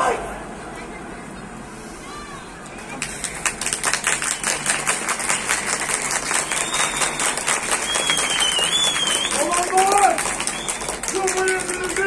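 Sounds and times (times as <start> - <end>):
crowd applauding: 3.0 - 12.0.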